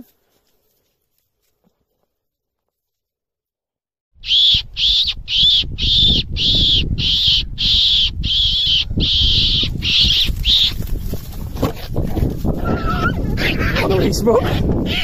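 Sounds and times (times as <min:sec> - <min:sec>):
wind and handling rumble: 0:05.7 - 0:15.0
predator caller squealing: 0:12.5 - 0:15.0.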